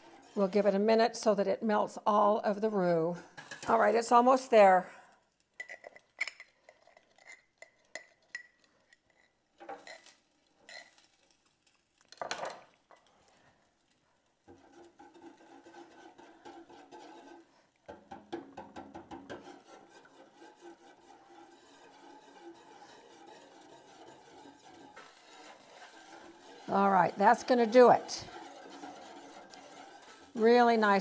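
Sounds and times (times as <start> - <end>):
whisk scraping and sloshing gravy: 0.0 - 0.9, 5.2 - 10.1, 12.7 - 31.0
whisk clinking on metal pan: 14.6 - 31.0.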